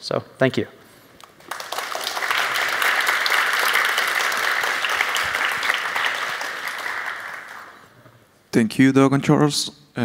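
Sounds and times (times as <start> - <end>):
audience applauding: 1.2 - 8.0.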